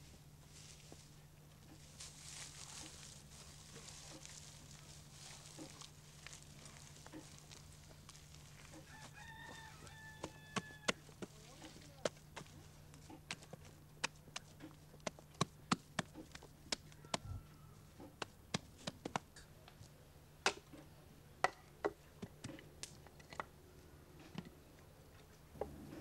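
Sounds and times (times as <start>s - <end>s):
sharp taps and knocks from hand work: 18.0s - 19.3s.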